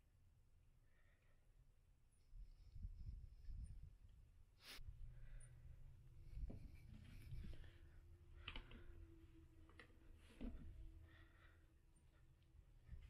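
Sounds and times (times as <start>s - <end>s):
faint steady hum: 0.0s - 13.0s
faint rustling and handling: 4.6s - 13.0s.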